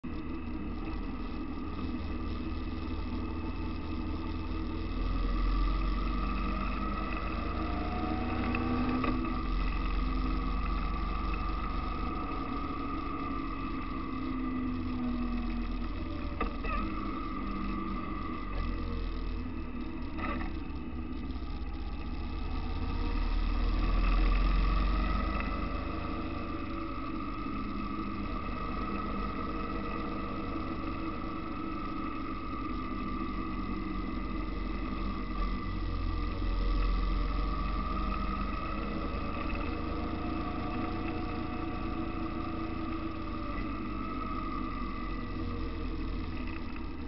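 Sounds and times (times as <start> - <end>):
car engine running: 0.0 - 47.0
road noise: 0.0 - 47.0.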